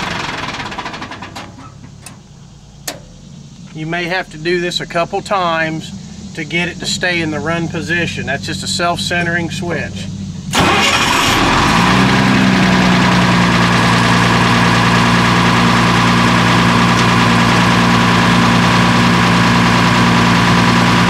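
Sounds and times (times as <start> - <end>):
generator engine idling: 0.0 - 21.0.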